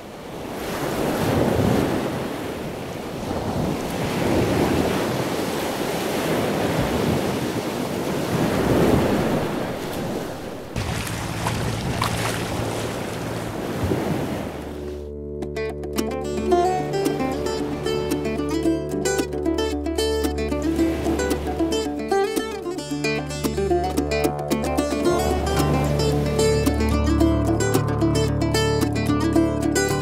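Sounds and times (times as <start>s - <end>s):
sea water rushing along hull: 0.0s - 15.1s, 16.4s - 28.6s
wind buffeting microphone: 1.0s - 14.9s
boat engine humming: 9.1s - 30.0s.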